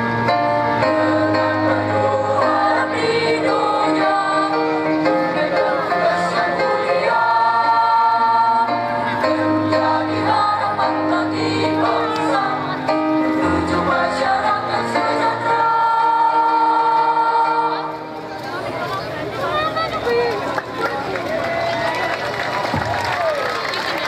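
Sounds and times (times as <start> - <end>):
mixed choir singing in harmony: 0.4 - 18.2.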